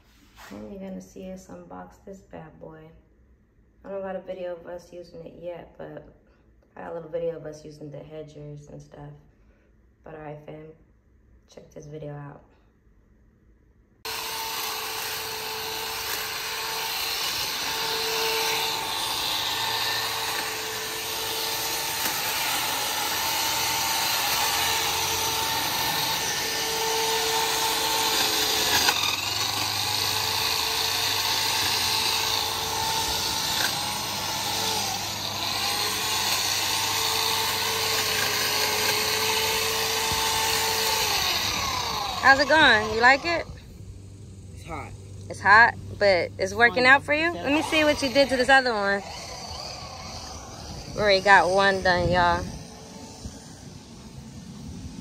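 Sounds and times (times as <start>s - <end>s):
hedge trimmer running: 14.0s - 55.0s.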